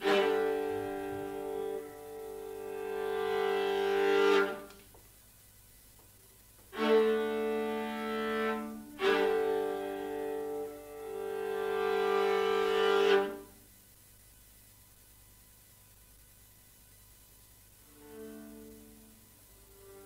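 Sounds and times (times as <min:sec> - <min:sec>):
string quartet bowing chords: 0:00.0 - 0:04.7, 0:06.8 - 0:13.4.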